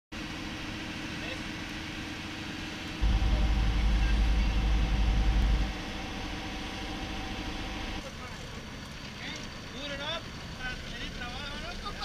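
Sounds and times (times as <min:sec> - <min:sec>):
boat engine droning: 0:00.2 - 0:10.5
loud low rumble: 0:03.0 - 0:08.0.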